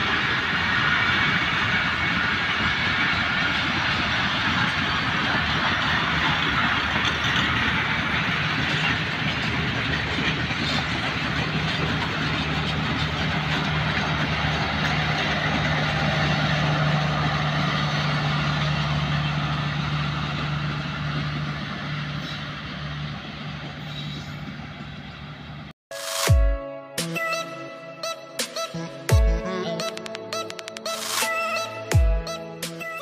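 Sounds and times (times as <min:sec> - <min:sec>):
train coaches clattering on rails: 0:00.0 - 0:25.7.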